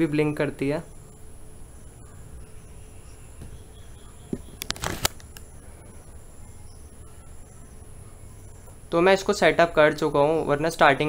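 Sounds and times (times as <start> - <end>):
faint high-pitched whine: 0.0 - 11.0
camera handling clicks and rustling: 4.6 - 5.4.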